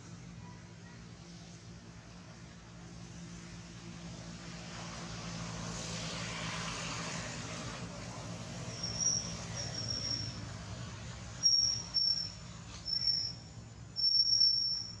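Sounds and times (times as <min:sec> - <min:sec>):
engine hum: 0:00.0 - 0:15.0.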